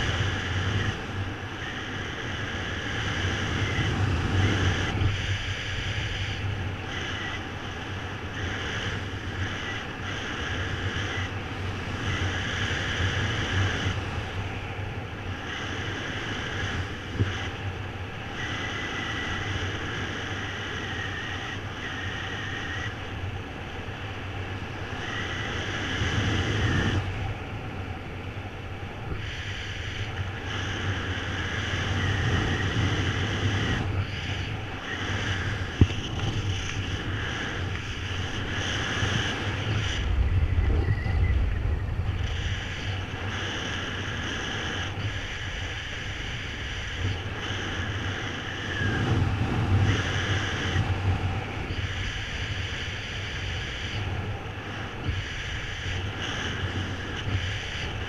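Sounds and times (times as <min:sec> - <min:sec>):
wind rushing over microphone: 0:00.0 - 0:58.0
faint high whistle: 0:40.0 - 0:42.2.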